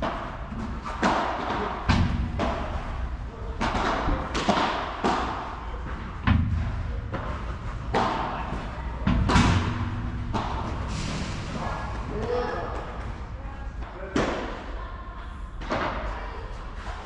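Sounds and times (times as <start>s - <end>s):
padel rackets hitting ball: 0.0s - 11.0s
ball bouncing on court: 3.6s - 10.9s.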